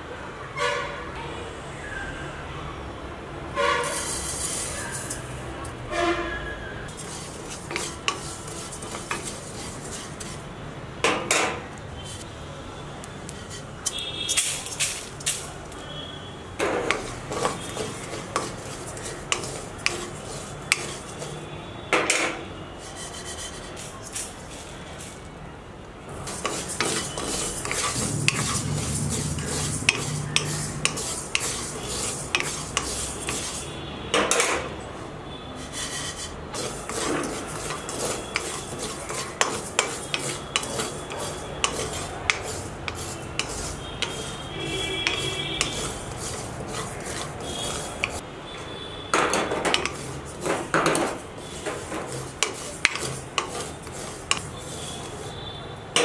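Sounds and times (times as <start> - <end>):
metal utensil scraping a pot: 3.6 - 5.5, 6.9 - 10.5, 13.3 - 15.5, 16.6 - 21.5, 22.1 - 25.2, 26.1 - 34.6, 35.6 - 48.2, 49.2 - 55.4.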